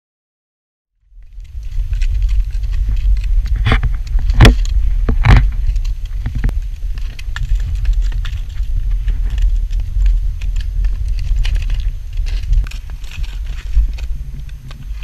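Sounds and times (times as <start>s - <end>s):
wind rumble: 1.0s - 15.0s
hooves crunching on snow: 1.1s - 15.0s.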